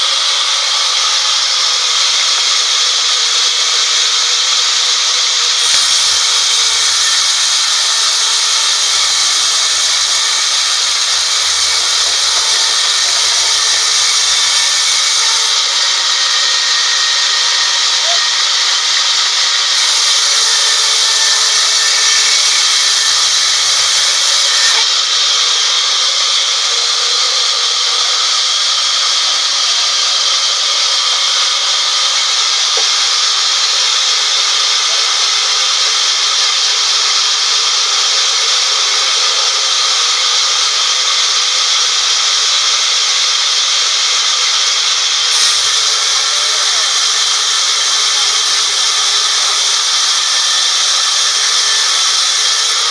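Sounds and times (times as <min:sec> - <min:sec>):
band saw cutting wood: 0:00.0 - 0:52.9.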